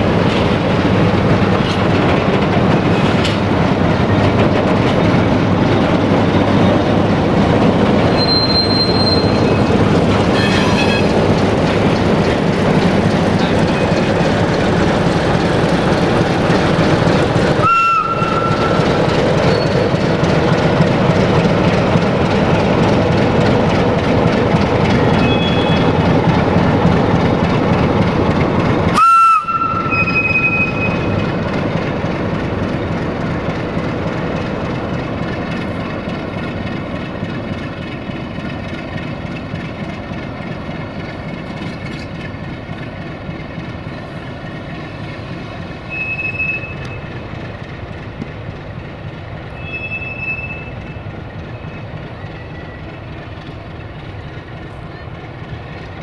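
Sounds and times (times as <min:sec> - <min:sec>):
diesel train engine: 0:00.0 - 0:56.0
steady engine hum: 0:00.0 - 0:56.0
short high squeals: 0:08.1 - 0:09.7, 0:49.6 - 0:51.0.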